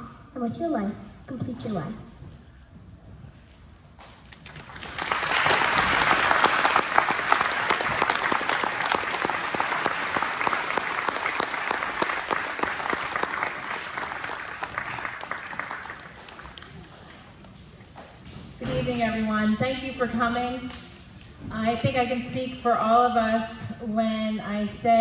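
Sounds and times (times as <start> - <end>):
audience applauding: 4.3 - 17.2.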